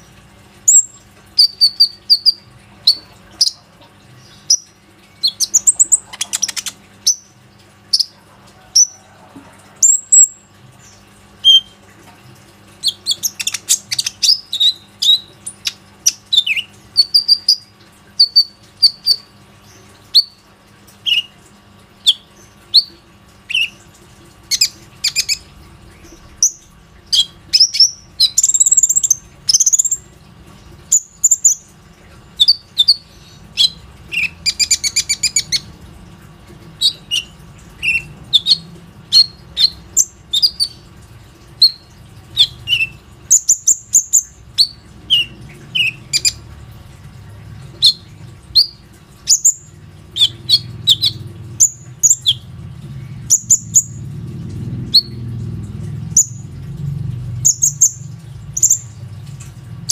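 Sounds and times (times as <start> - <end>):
sunbird singing chirps and twitters: 24.5 - 30.0, 57.4 - 59.0.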